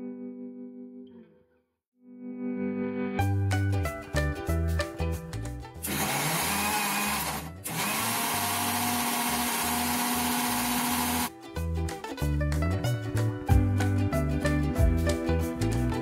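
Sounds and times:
mixer grinder blending: 0:05.8 - 0:11.3.

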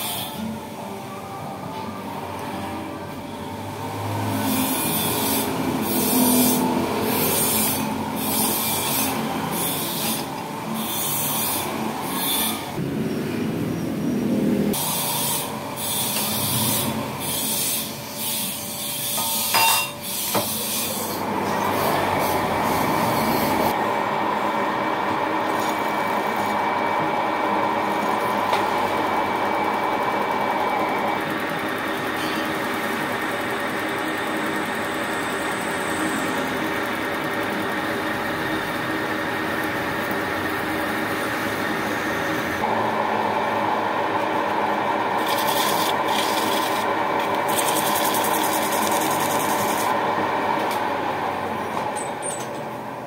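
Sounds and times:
lathe running: 0:02.0 - 0:53.0
tool cutting nylon: 0:45.2 - 0:50.0.

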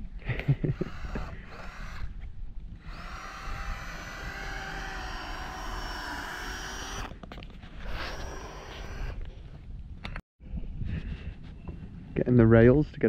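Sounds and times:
cordless drill whining: 0:00.6 - 0:02.2, 0:02.8 - 0:07.2, 0:07.8 - 0:09.3
wind on microphone: 0:00.8 - 0:13.0.

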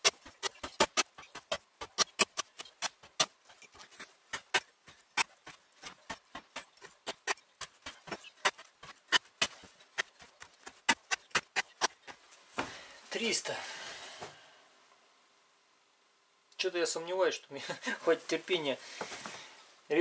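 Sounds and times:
axe chopping rope on wood: 0:00.0 - 0:12.7.

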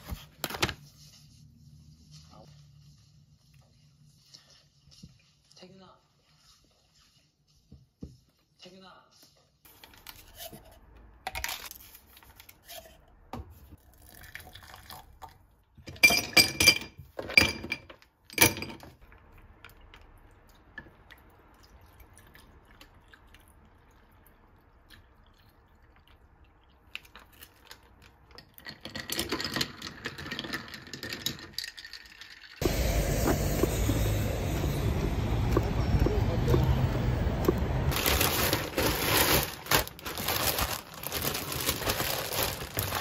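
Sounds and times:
liquid pouring: 0:13.9 - 0:15.5.

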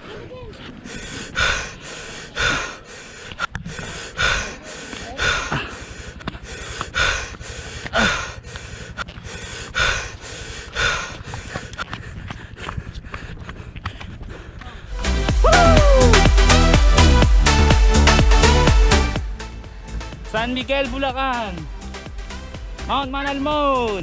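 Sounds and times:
person panting: 0:00.0 - 0:15.4.

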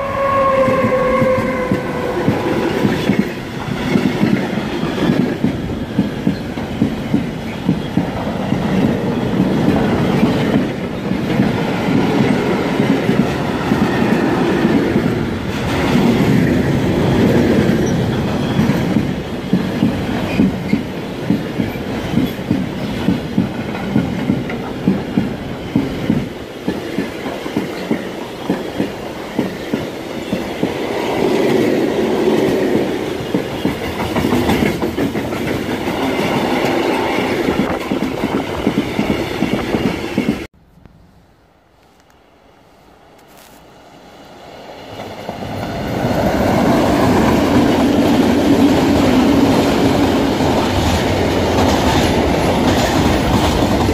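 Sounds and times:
freight train rumbling past: 0:00.0 - 0:40.5, 0:43.6 - 0:53.9
wheels clacking over rail joints: 0:32.4 - 0:40.5.

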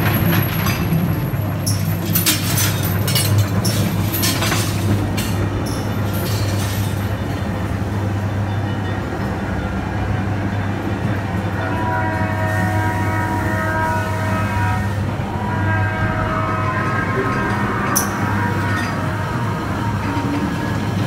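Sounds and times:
rattling clacks: 0:00.0 - 0:07.5
ride car rumbling on track: 0:00.0 - 0:21.0.

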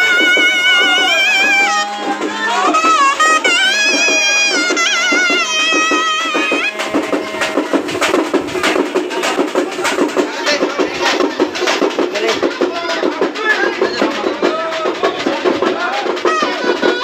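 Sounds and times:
wavering ornamented melody: 0:00.0 - 0:11.7
crowd noise: 0:00.0 - 0:17.0
steady drumbeat: 0:00.0 - 0:17.0.

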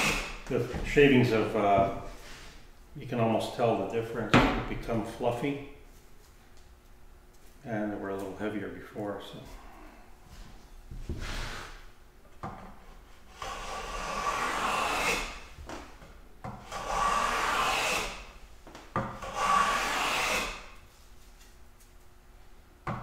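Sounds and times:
block plane swishing on wood: 0:12.7 - 0:15.4, 0:16.7 - 0:18.2, 0:19.2 - 0:20.6.

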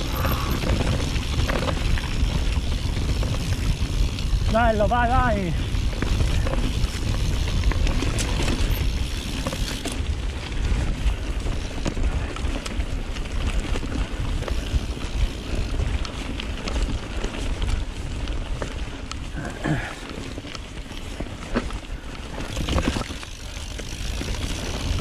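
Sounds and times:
wind buffeting microphone: 0:00.0 - 0:19.0
bike rattling on rough trail: 0:00.0 - 0:25.0.

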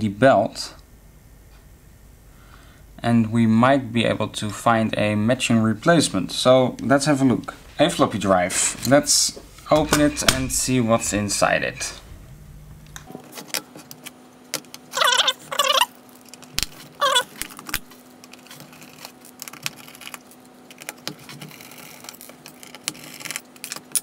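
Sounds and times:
metallic scrapes: 0:07.5 - 0:13.1.

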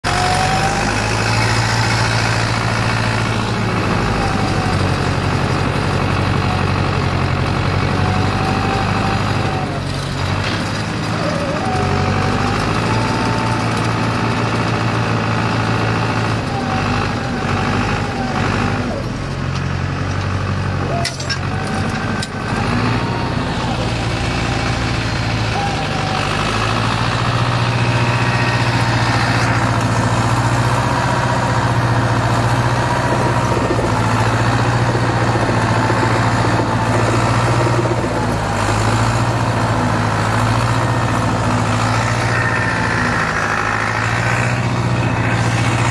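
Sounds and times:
tractor diesel engine running: 0:00.0 - 0:45.9.

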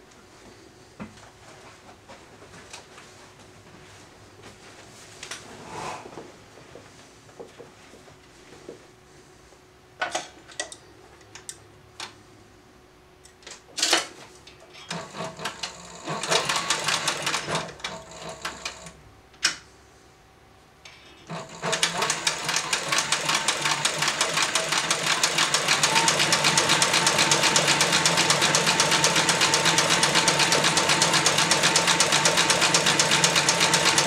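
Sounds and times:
leather sewing machine stitching: 0:14.9 - 0:19.0, 0:21.3 - 0:34.0.

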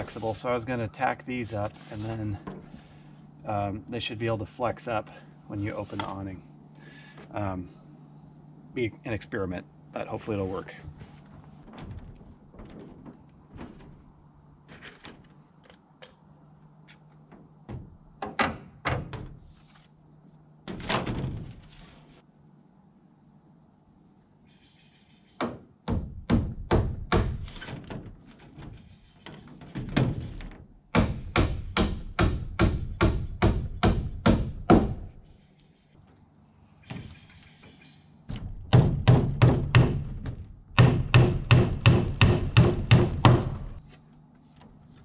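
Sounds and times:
scattered knocks and handling: 0:11.0 - 0:19.3
hammer blows on nails: 0:40.8 - 0:43.8.

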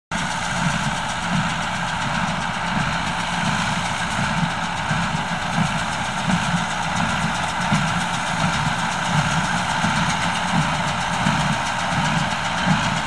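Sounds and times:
tractor diesel engine running: 0:00.1 - 0:13.0.

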